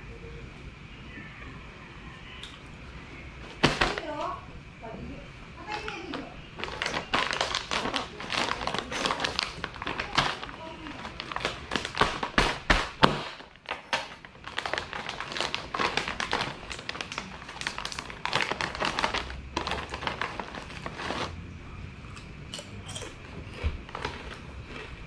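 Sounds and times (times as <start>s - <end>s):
plastic snack bag crinkling: 5.6s - 21.4s, 23.8s - 25.0s.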